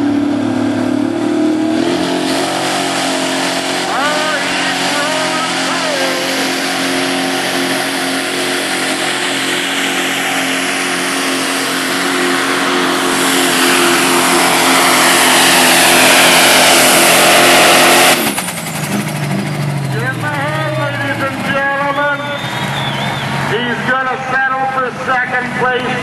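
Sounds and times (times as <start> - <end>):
diesel truck engine at full throttle: 0.0 - 26.0.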